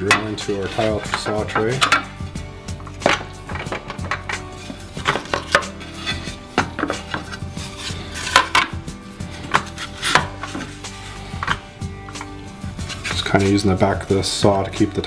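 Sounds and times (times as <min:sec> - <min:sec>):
tile and wood knocking: 0:02.8 - 0:05.7, 0:06.6 - 0:07.4.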